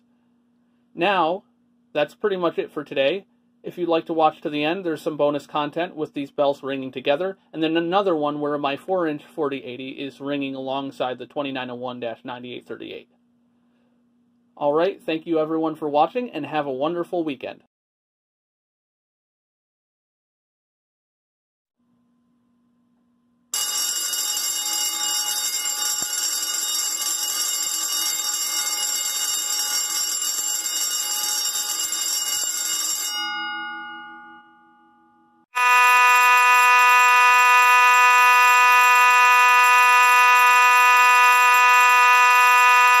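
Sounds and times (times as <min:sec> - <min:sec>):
fire alarm bells ringing: 0:23.6 - 0:43.0
fire alarm horn: 0:23.6 - 0:43.0.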